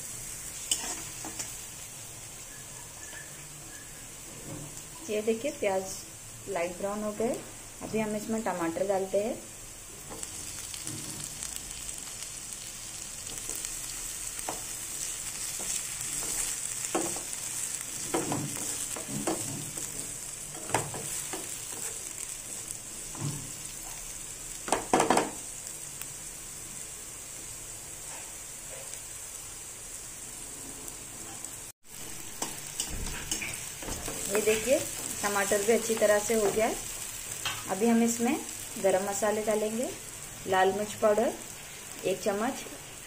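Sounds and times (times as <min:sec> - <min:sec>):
onions and tomatoes sizzling in oil: 0:00.0 - 0:43.0
wooden spatula scraping a pan: 0:00.7 - 0:01.6, 0:30.8 - 0:36.6.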